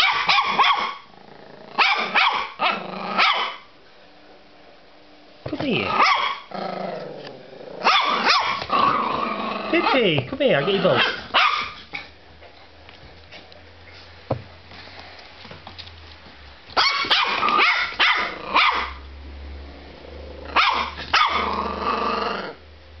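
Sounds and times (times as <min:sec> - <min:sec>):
puppy barking and growling: 0:00.0 - 0:03.7, 0:05.6 - 0:12.2, 0:16.7 - 0:22.6.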